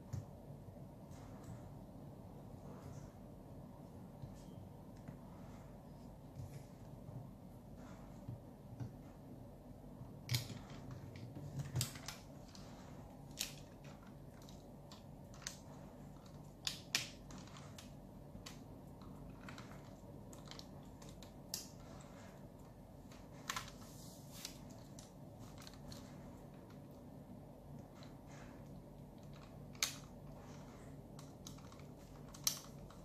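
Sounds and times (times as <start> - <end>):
plastic toy parts clicking: 31.2 - 33.0.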